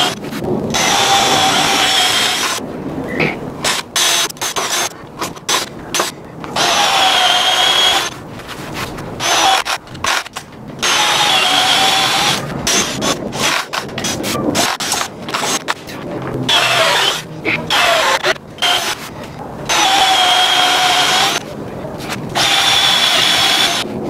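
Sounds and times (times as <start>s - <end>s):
cordless drill boring into wood: 0.0s - 2.6s, 5.5s - 8.1s, 9.2s - 13.8s, 16.5s - 19.0s, 19.7s - 21.4s, 22.4s - 23.8s.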